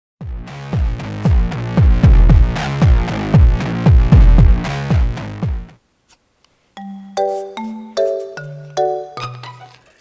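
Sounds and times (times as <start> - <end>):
electronic music with drum beat: 0.2 - 5.7.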